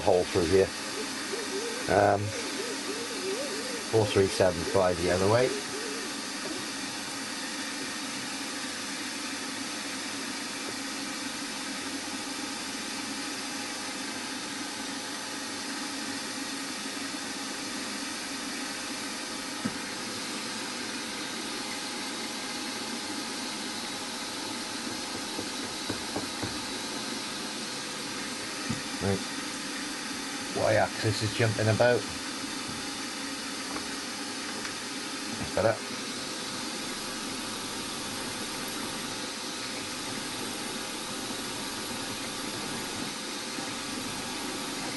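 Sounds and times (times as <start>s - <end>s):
milling machine whirring: 0.0s - 9.2s, 18.6s - 44.9s.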